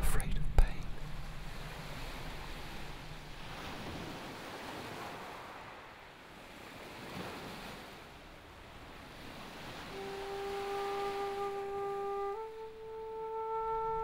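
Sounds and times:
waves washing onto pebbles: 1.3 - 8.1.

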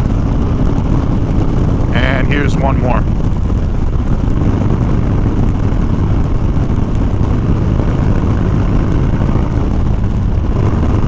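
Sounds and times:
motorcycle engine running: 0.0 - 11.0
wind rush on microphone: 0.0 - 11.0.

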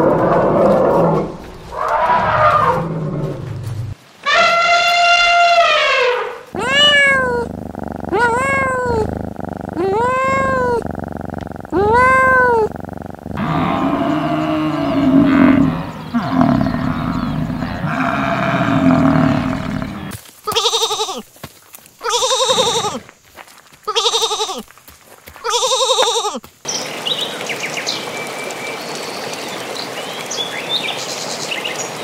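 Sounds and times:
rough animal calling: 4.2 - 21.2, 22.0 - 23.0, 23.9 - 24.7, 25.4 - 26.4
bleat-like cry: 4.3 - 7.5, 8.1 - 9.1, 20.5 - 21.2, 22.0 - 23.0, 23.9 - 24.6, 25.4 - 26.4
meow-like animal cries: 4.3 - 7.5, 8.1 - 9.1, 9.8 - 10.9, 11.7 - 12.8, 22.1 - 23.0.

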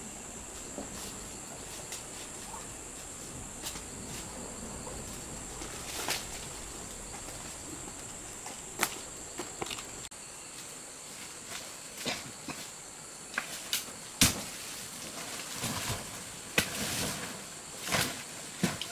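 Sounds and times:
insects droning: 0.0 - 18.9
footsteps snapping twigs: 5.6 - 10.1.

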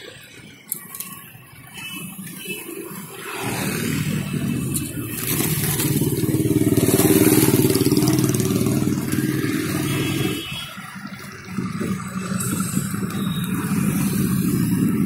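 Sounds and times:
motorcycle engine running: 3.6 - 15.0.

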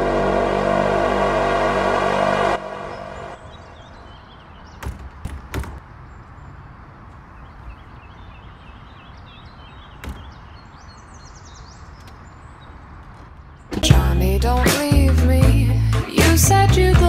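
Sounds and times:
birds chirping: 2.6 - 14.9
dull knocks and thumps: 4.8 - 5.9.

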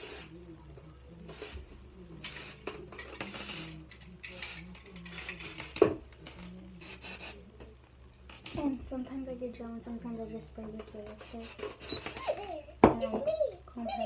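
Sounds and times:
aerosol spray hissing: 0.0 - 0.3, 1.3 - 1.6, 2.3 - 3.8, 6.8 - 7.4, 11.2 - 12.2.

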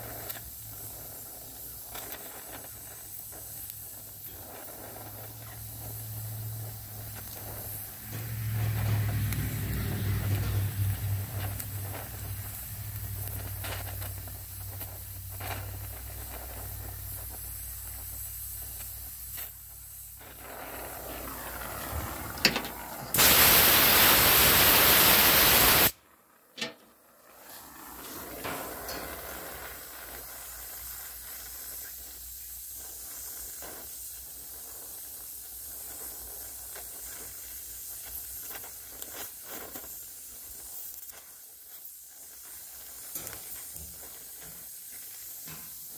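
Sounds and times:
torch flame hissing: 0.0 - 45.9
rush of gas: 17.8 - 26.0.

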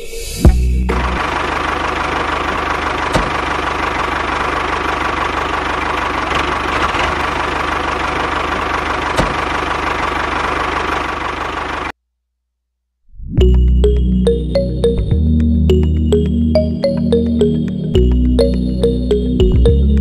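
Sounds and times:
tractor engine idling: 0.5 - 11.9, 15.7 - 20.0.

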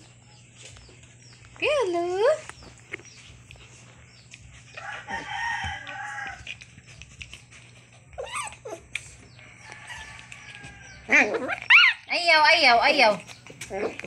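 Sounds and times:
rooster crowing: 4.8 - 6.5, 9.4 - 11.2.

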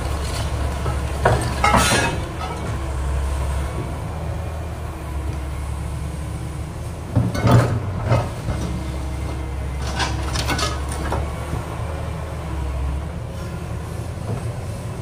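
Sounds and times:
metal clanking and scraping: 0.0 - 2.8, 7.2 - 8.8, 9.7 - 11.2
excavator diesel engine running: 0.0 - 15.0.

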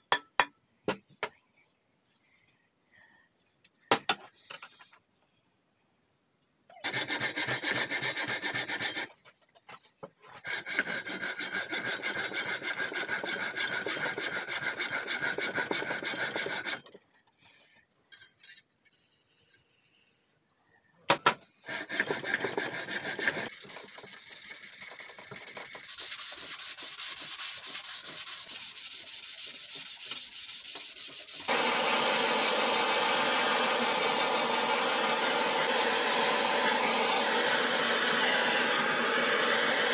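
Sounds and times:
hand saw cutting wood: 6.8 - 9.2, 10.4 - 17.0, 21.6 - 39.9
propane torch hissing: 31.5 - 39.9.

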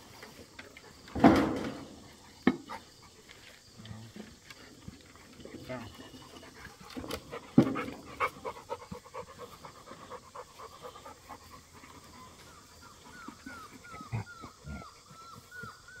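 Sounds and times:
dog panting: 4.5 - 15.9
dog whining: 11.8 - 16.0.

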